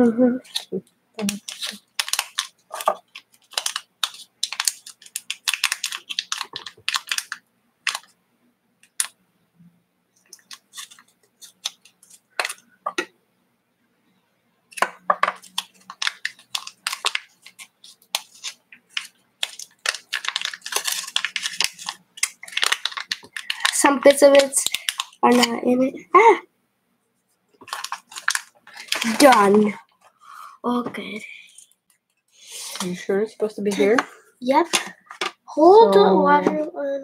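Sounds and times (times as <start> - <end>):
foil sachets crinkling and tearing: 0.4 - 8.1, 10.2 - 12.6, 14.7 - 25.5, 27.6 - 29.9.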